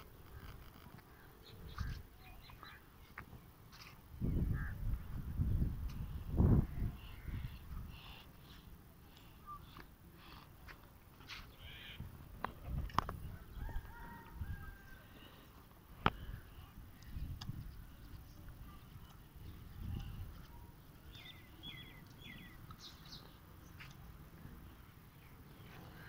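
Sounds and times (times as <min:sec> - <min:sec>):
birds calling: 0:00.1 - 0:05.0, 0:06.0 - 0:10.4, 0:11.2 - 0:26.0
low rumbling on microphone: 0:04.2 - 0:07.9.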